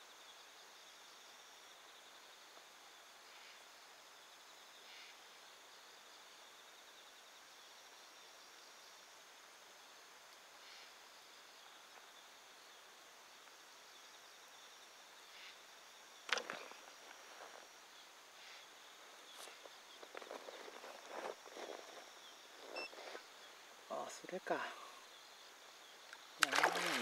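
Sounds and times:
faint insect chirring: 0.0s - 27.0s.

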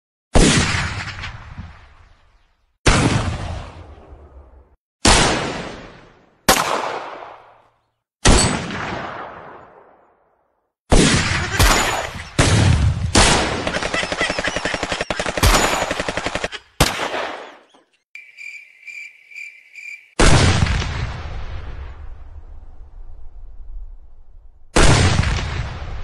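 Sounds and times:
gunshots: 0.3s - 2.0s, 2.8s - 4.1s, 5.0s - 10.0s, 10.9s - 17.7s, 20.2s - 21.7s, 24.8s - 26.0s
machine-gun rattle: 13.8s - 16.5s.

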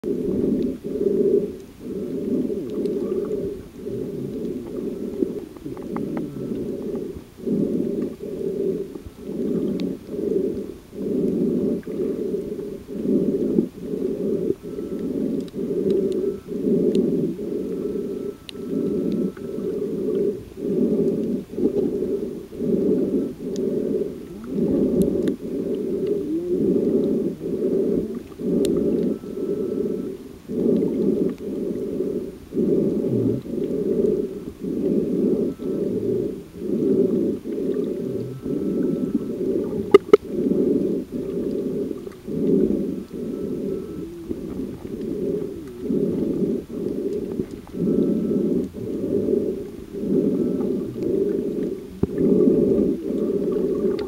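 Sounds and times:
muffled underwater pulsing: 0.0s - 54.0s
faint sharp clicks: 1.5s - 1.8s, 2.6s - 3.5s, 4.3s - 7.2s, 8.9s - 12.6s, 14.9s - 17.1s, 17.7s - 20.3s, 23.4s - 26.3s, 28.1s - 29.1s, 30.0s - 31.5s, 37.5s - 40.3s, 41.2s - 49.0s, 50.6s - 52.3s.

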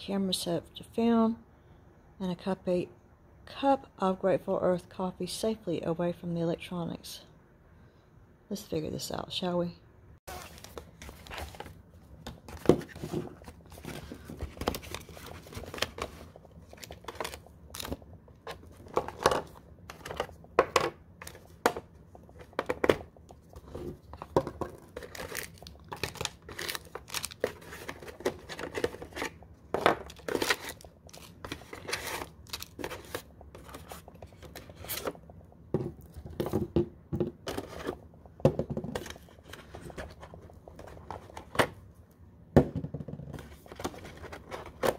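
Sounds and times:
packaging rustling and crinkling: 10.3s - 20.4s, 23.8s - 35.2s.

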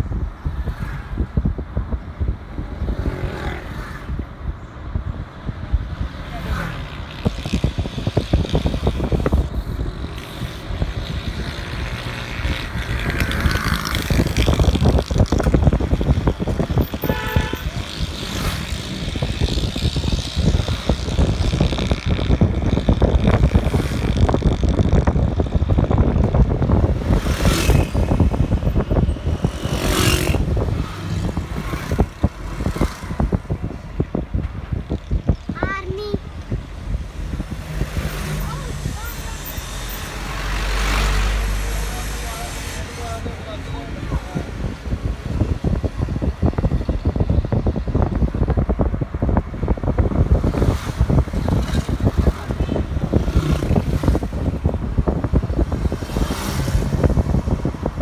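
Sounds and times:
passing traffic: 0.0s - 58.0s
vehicle driving rumble: 0.0s - 58.0s
wind buffeting microphone: 0.0s - 58.0s
short car horn: 17.0s - 17.7s.

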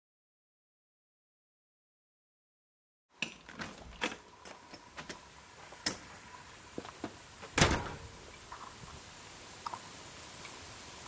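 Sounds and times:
door clicks and knocks: 7.5s - 8.2s
heavy door thump: 7.5s - 8.2s.

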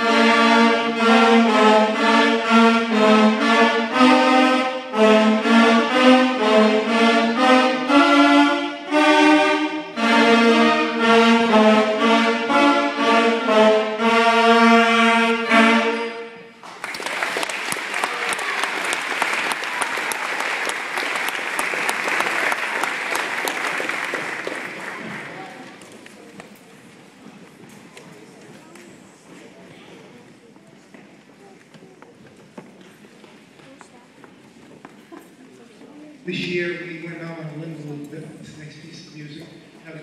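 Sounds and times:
wind band playing a march: 0.0s - 16.5s
audience applause: 16.6s - 26.3s.

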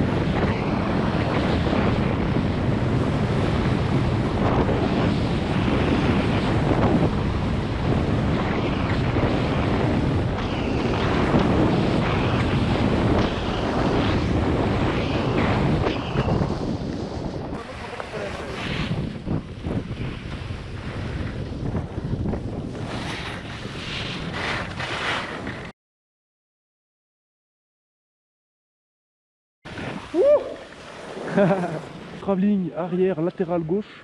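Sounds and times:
wind buffeting microphone: 0.0s - 25.7s
skis carving on packed snow: 0.1s - 25.7s, 29.7s - 34.0s.

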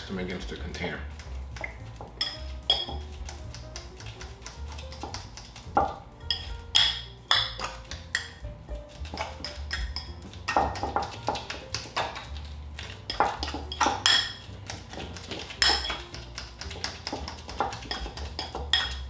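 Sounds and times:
fork clinking against glass bowl: 1.6s - 3.2s, 6.2s - 8.4s, 9.0s - 12.2s, 12.8s - 19.0s.

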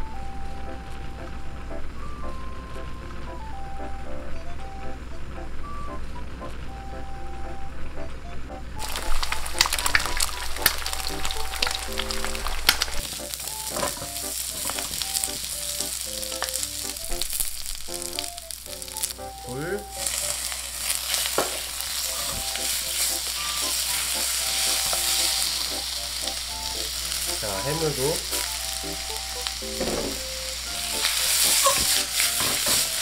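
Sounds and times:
vegetables sizzling in wok: 8.8s - 33.0s
spatula scraping wok: 19.9s - 27.6s, 30.8s - 33.0s.

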